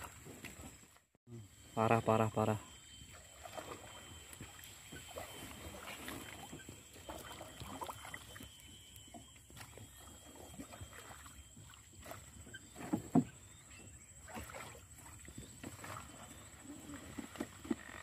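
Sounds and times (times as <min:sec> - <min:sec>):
pole splashing water: 0:03.1 - 0:08.5, 0:09.5 - 0:13.2, 0:14.2 - 0:16.3.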